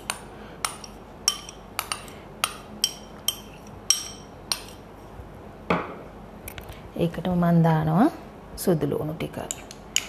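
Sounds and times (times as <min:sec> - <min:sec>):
metal spoon clinking on ceramic bowl: 0:00.0 - 0:04.8.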